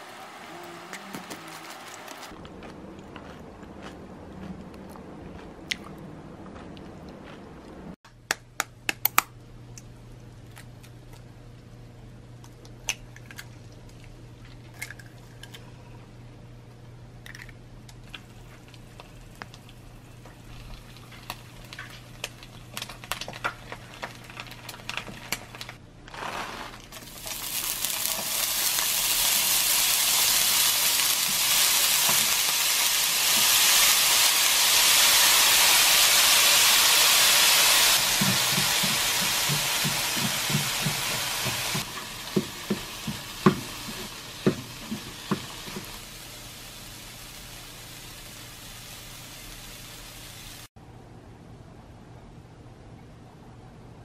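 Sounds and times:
food sizzling in frying pan: 0:00.0 - 0:00.5, 0:18.3 - 0:50.7
eggs frying crackle: 0:00.0 - 0:02.4, 0:17.2 - 0:50.7
spatula knocking on pan: 0:38.0 - 0:45.9
spatula stirring in pan: 0:38.0 - 0:46.0.

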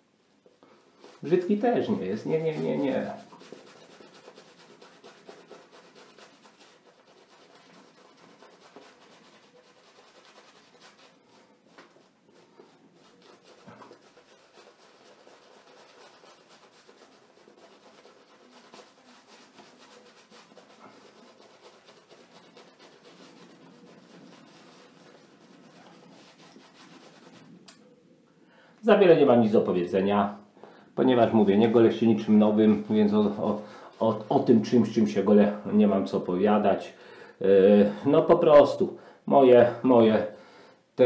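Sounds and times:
shaving brush scratchy swishing: 0:01.0 - 0:27.8, 0:31.2 - 0:35.4.

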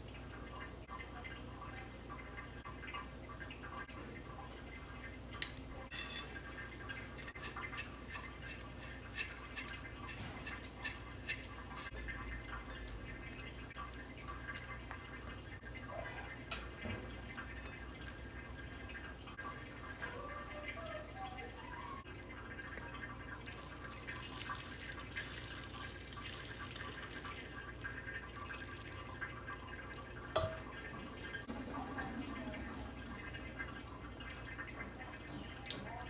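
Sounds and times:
bottle clicks and taps: 0:30.3 - 0:30.6.

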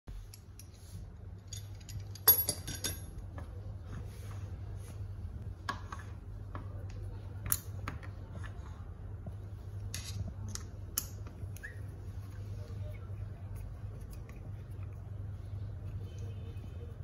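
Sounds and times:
steady low hum: 0:00.1 - 0:17.0
metal tools clinking on vise: 0:01.4 - 0:03.2.

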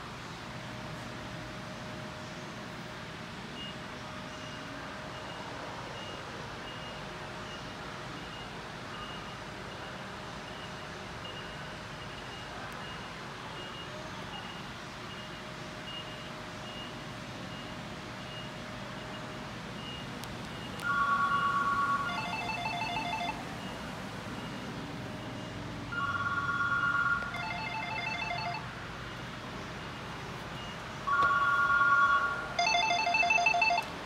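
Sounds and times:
electronic telephone ringing: 0:20.8 - 0:23.8, 0:25.9 - 0:28.7, 0:31.1 - 0:34.0.

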